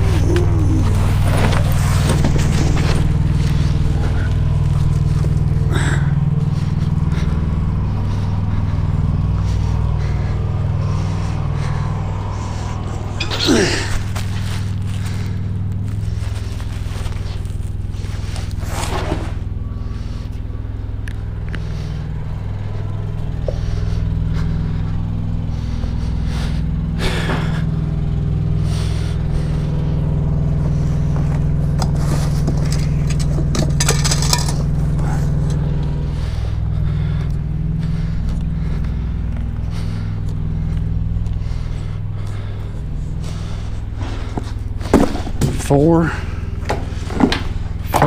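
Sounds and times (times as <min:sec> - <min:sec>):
diesel truck engine idling: 0:00.0 - 0:48.0
metallic clatter: 0:32.5 - 0:35.6.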